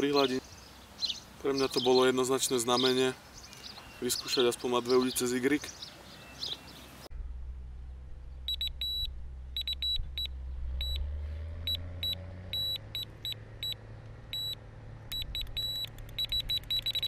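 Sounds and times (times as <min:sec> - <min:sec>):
electronic bite alarm beeping: 0:08.5 - 0:11.1, 0:11.7 - 0:17.0.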